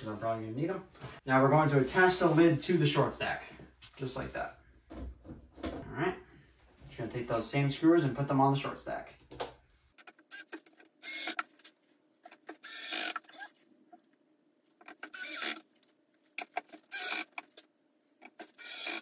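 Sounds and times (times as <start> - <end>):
cordless drill driving screws: 10.3 - 11.5, 12.5 - 13.4, 15.0 - 15.6, 16.9 - 17.4, 18.4 - 19.0.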